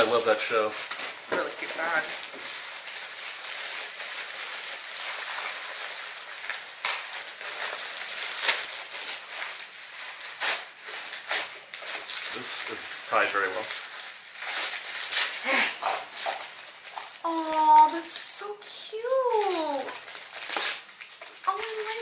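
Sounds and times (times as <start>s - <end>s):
wrapping paper rustling: 0.0s - 22.0s.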